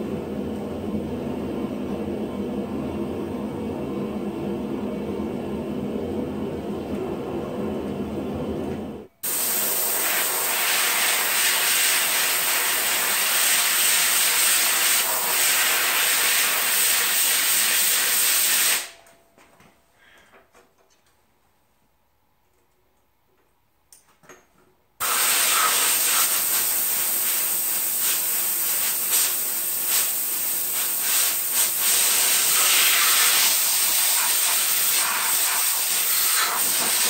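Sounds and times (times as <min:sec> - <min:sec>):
compressed air hissing: 0:09.2 - 0:18.9, 0:25.0 - 0:37.0.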